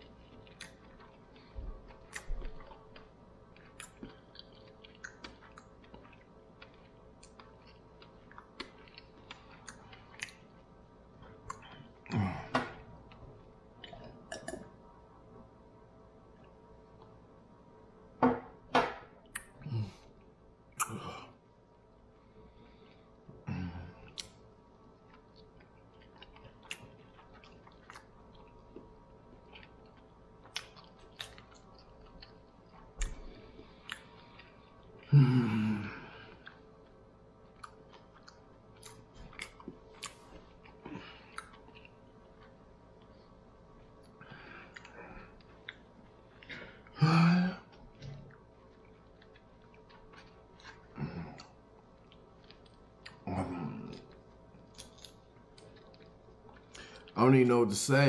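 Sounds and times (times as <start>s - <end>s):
person chewing food: 0.0s - 14.7s, 22.2s - 47.0s, 47.6s - 57.2s
wet mouth clicks and smacks: 19.3s - 19.6s.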